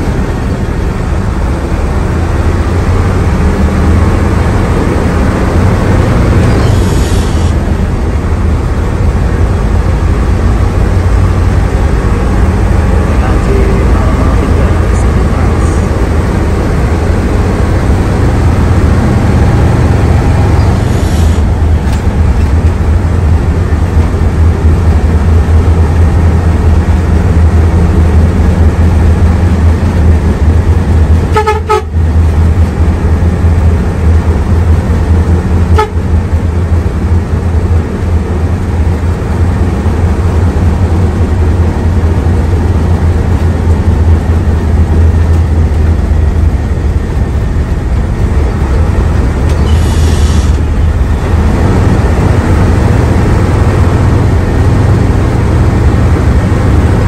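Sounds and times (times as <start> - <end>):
bus diesel engine droning: 0.0 - 57.0
horn honking: 31.3 - 32.0, 35.7 - 36.1
short hiss: 49.6 - 50.6.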